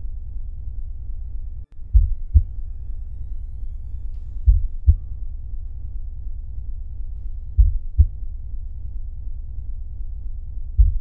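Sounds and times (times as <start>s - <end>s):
low rumbling drone: 0.0s - 11.0s
heartbeat-like double thumps: 1.8s - 2.6s, 4.4s - 5.1s, 7.5s - 8.3s, 10.8s - 11.0s.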